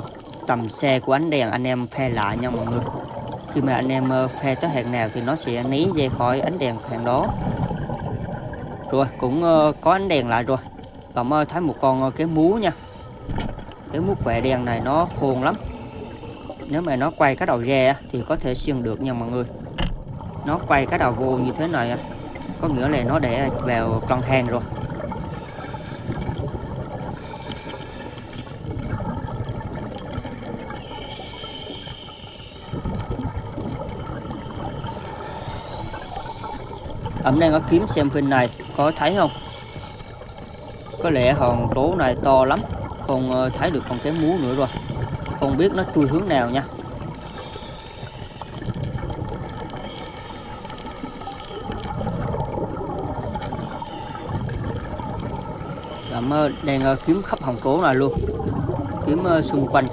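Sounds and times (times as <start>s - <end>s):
air bubbles gurgling: 0.0s - 59.9s
steady watery hiss: 0.0s - 59.9s
underwater diver breathing: 12.7s - 13.9s, 15.5s - 16.7s, 24.7s - 41.1s, 42.7s - 59.9s.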